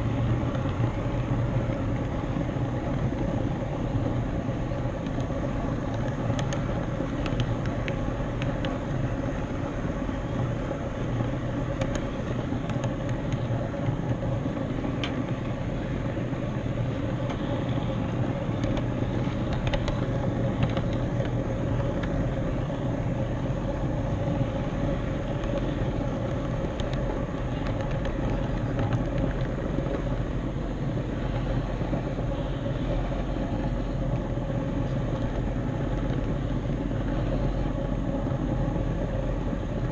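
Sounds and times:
model train running on track: 0:00.0 - 0:39.9
faint clicks: 0:05.0 - 0:08.8, 0:18.5 - 0:22.2, 0:25.3 - 0:30.1.

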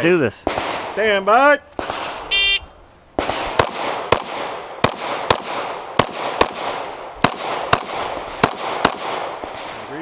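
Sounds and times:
pistol shots: 0:03.2 - 0:09.7.

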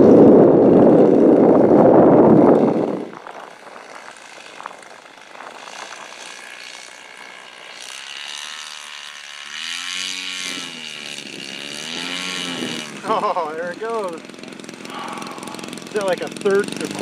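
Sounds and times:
model plane engine running: 0:00.0 - 0:17.0.

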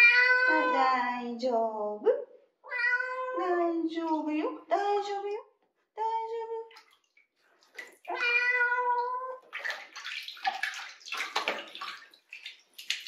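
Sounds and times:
kitten meowing: 0:00.0 - 0:00.8, 0:02.7 - 0:03.4, 0:08.1 - 0:09.4
water splashing in sink: 0:06.4 - 0:13.0.

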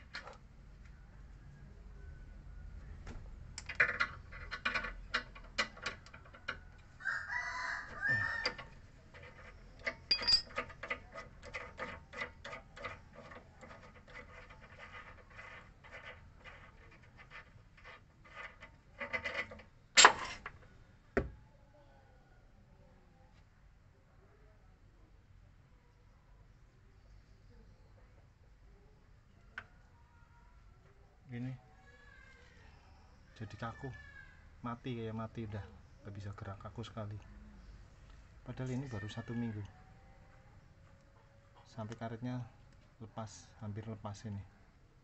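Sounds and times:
chicken calling: 0:07.0 - 0:08.5
sharp metal clack: 0:10.0 - 0:10.6, 0:20.0 - 0:20.5.

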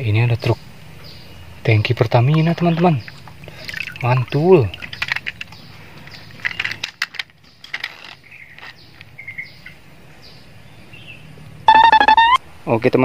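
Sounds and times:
plastic toy trucks clicking: 0:04.8 - 0:09.1
bird chirps: 0:08.2 - 0:12.4.

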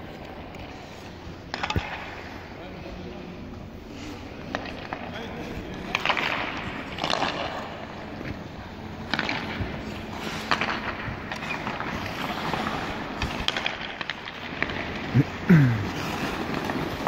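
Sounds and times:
sticks clacking on puck: 0:01.5 - 0:02.2, 0:05.7 - 0:08.2, 0:09.0 - 0:15.1
skate blades scraping ice: 0:03.8 - 0:17.0.

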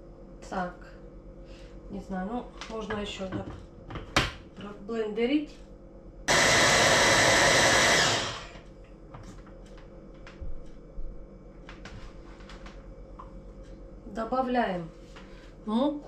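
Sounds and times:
hand blender running: 0:06.3 - 0:08.6.

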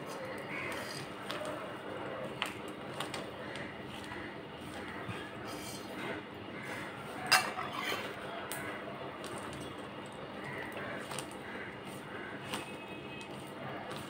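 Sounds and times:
spoon clinking on steel plate: 0:07.3 - 0:08.2.

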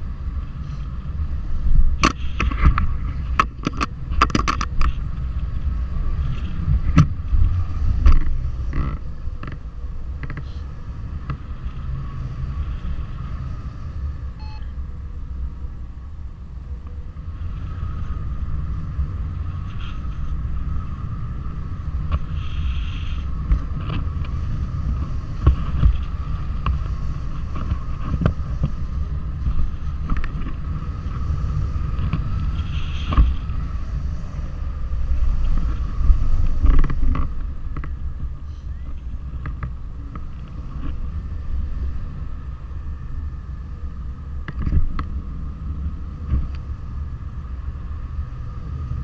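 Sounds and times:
wind rushing over microphone: 0:00.0 - 0:49.0
knocks and crackles: 0:01.8 - 0:13.2, 0:21.8 - 0:34.2, 0:35.0 - 0:38.2, 0:38.9 - 0:41.2, 0:44.4 - 0:45.2
faint high tone: 0:14.4 - 0:14.8.

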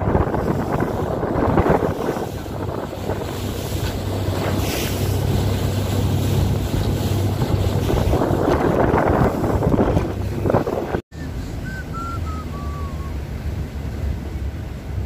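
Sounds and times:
boat engine hum: 0:00.0 - 0:15.0
water rushing past hull: 0:00.0 - 0:15.0
wind buffeting microphone: 0:00.0 - 0:15.0.

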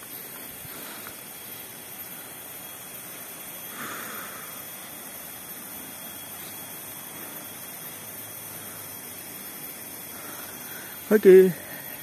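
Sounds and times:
outdoor ambience hiss: 0:00.0 - 0:12.0.

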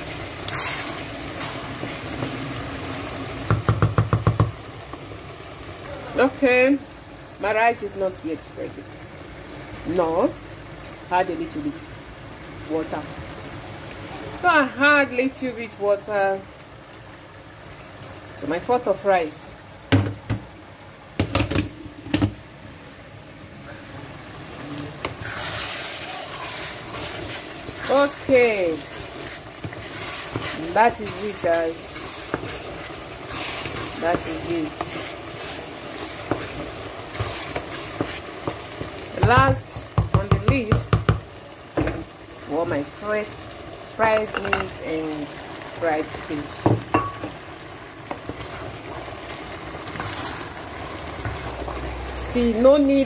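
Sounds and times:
stew sizzling in a pot: 0:00.0 - 0:53.0
wooden spoon stirring: 0:25.0 - 0:41.1
metal cookware clanking: 0:46.9 - 0:47.4.

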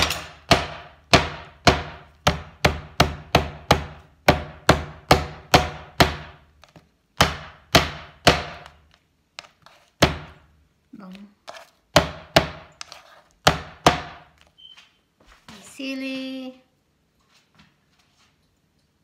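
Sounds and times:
metal mallet pounding on wooden board: 0:00.0 - 0:06.5, 0:07.2 - 0:08.8, 0:10.0 - 0:10.4, 0:11.9 - 0:12.7, 0:13.4 - 0:14.3.

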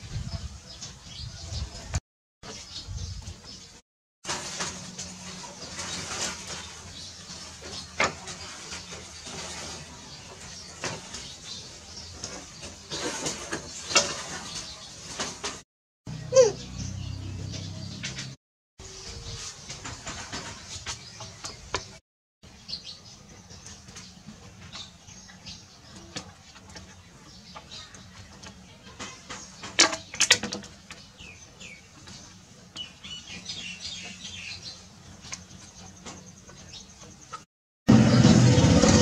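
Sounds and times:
small birds chirping: 0:20.6 - 0:37.5.

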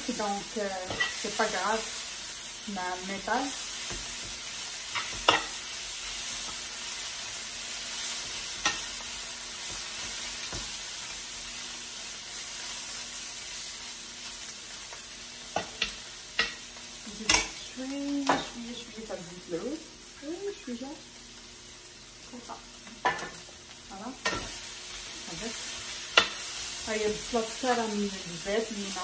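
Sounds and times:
meat sizzling in a frying pan: 0:00.0 - 0:29.0
metal spoon scraping a pan: 0:00.8 - 0:01.3.

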